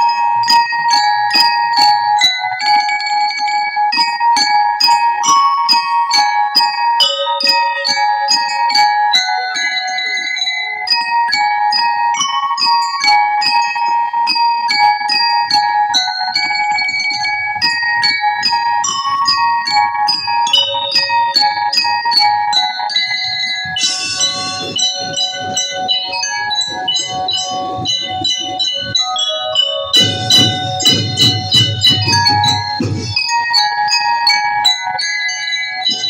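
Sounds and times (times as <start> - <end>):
bell-lyres playing march melody: 0.0 - 36.0
drums keeping time: 23.7 - 34.0
bright cymbal crash: 23.8 - 24.9.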